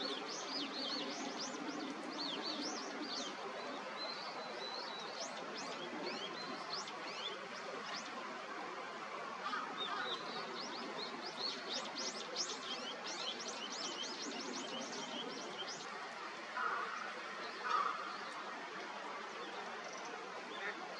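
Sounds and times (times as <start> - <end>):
outdoor background hiss: 0.0 - 20.9.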